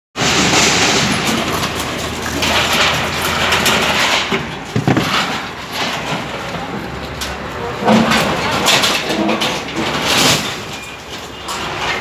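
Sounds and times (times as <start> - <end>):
diesel engine running: 0.2 - 8.8
crunching and scraping metal: 0.2 - 12.0.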